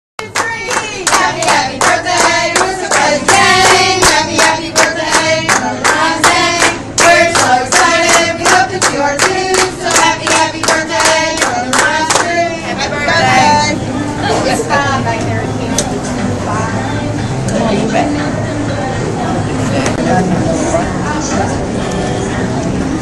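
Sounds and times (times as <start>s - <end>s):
group clapping in rhythm: 0.2s - 12.6s
group singing together: 0.2s - 15.4s.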